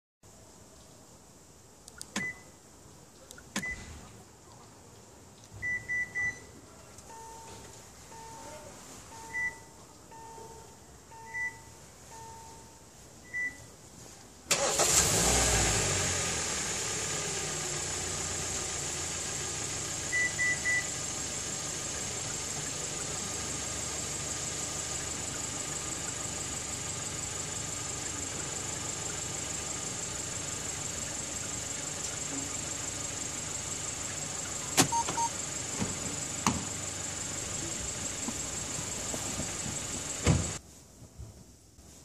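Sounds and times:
quick beeps: 0:05.6 - 0:06.5, 0:07.1 - 0:13.7, 0:34.8 - 0:35.4
car engine starting and idling: 0:14.5 - 0:40.6.

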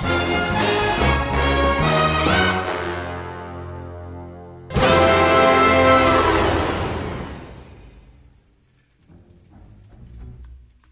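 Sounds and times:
background music held chord: 0:00.0 - 0:07.6.

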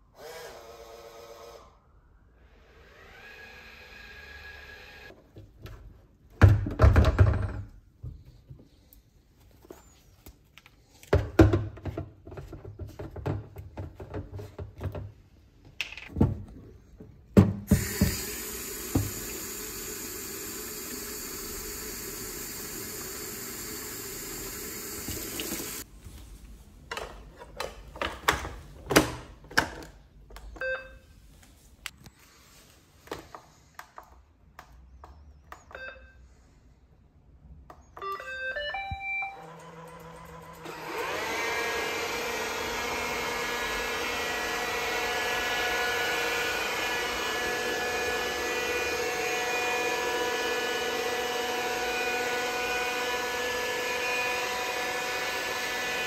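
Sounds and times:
water tap running: 0:17.7 - 0:25.8.

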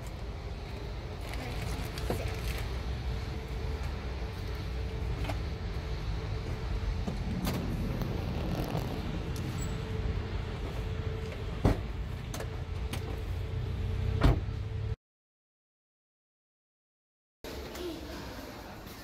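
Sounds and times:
low rumble: 0:00.2 - 0:15.0
car door slamming: 0:14.2 - 0:14.5
sliding door thudding shut: 0:14.2 - 0:14.5.

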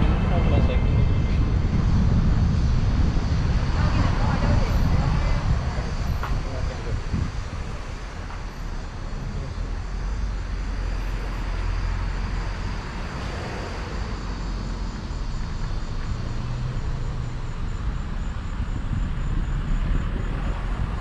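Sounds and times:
vehicle rumble: 0:00.0 - 0:21.0.

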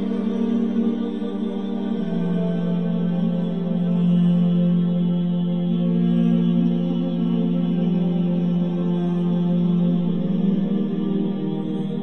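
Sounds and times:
new-age drone music: 0:00.0 - 0:12.0.

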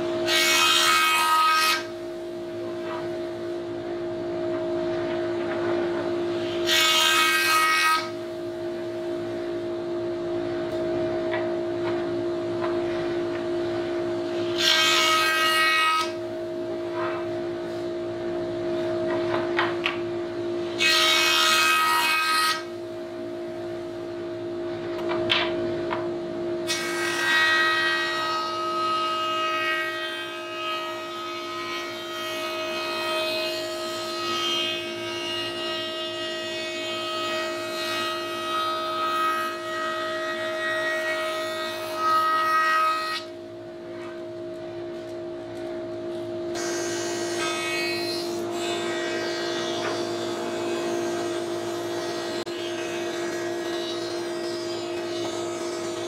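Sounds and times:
board being cut by jointer: 0:00.0 - 0:01.9, 0:05.5 - 0:08.2, 0:14.4 - 0:16.2, 0:20.7 - 0:22.7, 0:26.7 - 0:43.3, 0:46.6 - 0:56.0.

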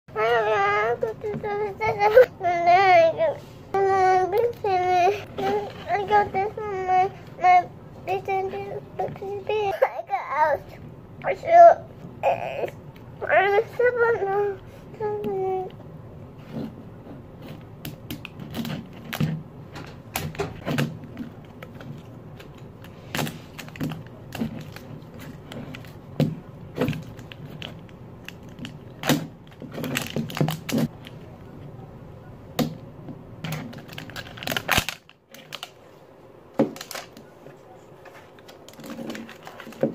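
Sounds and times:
plastic wrapping crinkling and tearing: 0:20.0 - 0:31.1, 0:33.5 - 0:35.9, 0:36.6 - 0:37.3, 0:38.4 - 0:39.9.

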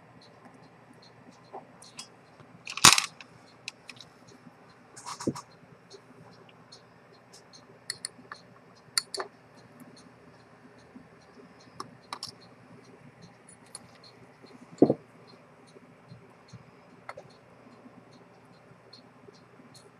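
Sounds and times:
metal tool clicks and scrapes: 0:02.7 - 0:04.0.

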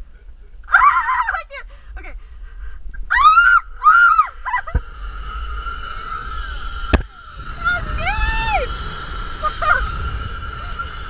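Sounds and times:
wind rumble: 0:00.0 - 0:11.0
woman screaming: 0:00.7 - 0:01.6, 0:03.1 - 0:04.8, 0:07.5 - 0:08.8, 0:09.4 - 0:10.1
zipline trolley whining on cable: 0:00.7 - 0:11.0.

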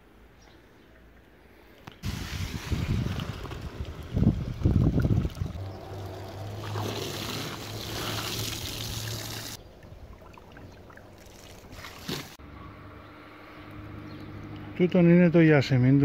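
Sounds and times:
hose water splashing into containers: 0:02.0 - 0:12.4.

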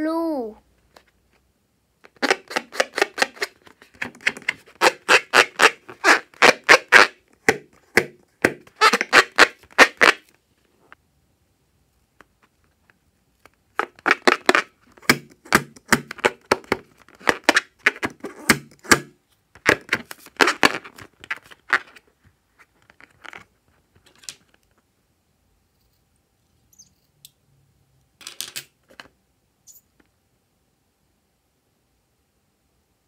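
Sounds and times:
rubber balloon squeaking: 0:02.0 - 0:10.3, 0:13.8 - 0:22.0.

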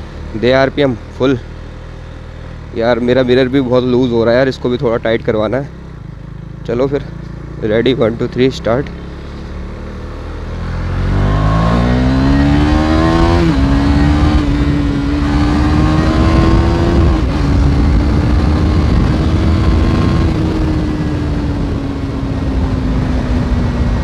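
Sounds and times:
motorcycle engine accelerating: 0:00.0 - 0:24.0
wind rushing over microphone: 0:11.0 - 0:24.0.

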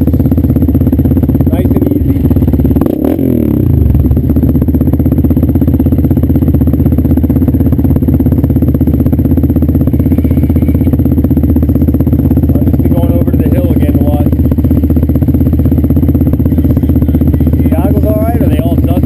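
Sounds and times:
dirt bike engine idling: 0:00.0 - 0:19.0.

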